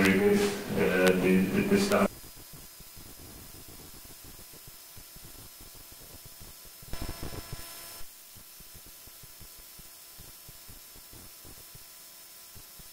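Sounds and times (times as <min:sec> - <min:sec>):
background hiss and hum: 0:00.0 - 0:12.9.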